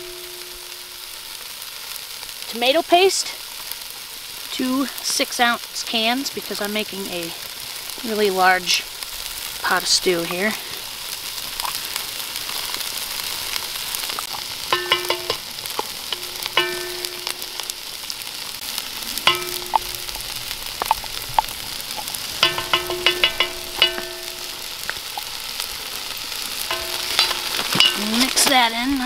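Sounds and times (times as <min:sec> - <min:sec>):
vegetables sizzling in a pot: 0:00.0 - 0:29.0
tin can ringing taps: 0:14.7 - 0:17.8, 0:19.3 - 0:21.5, 0:22.4 - 0:25.0
stick scraping a tin can: 0:26.7 - 0:28.7.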